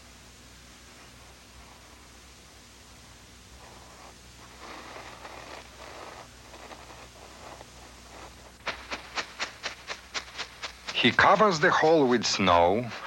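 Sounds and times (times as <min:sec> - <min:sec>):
snow crunching and scraping: 0:03.6 - 0:13.0.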